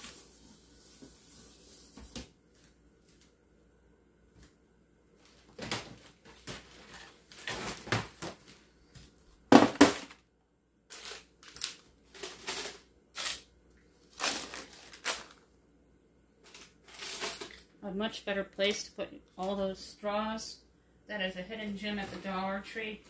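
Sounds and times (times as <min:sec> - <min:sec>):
plastic packs clattering and crinkling: 0:05.3 - 0:08.6, 0:09.5 - 0:10.2, 0:10.9 - 0:15.4, 0:16.4 - 0:17.8.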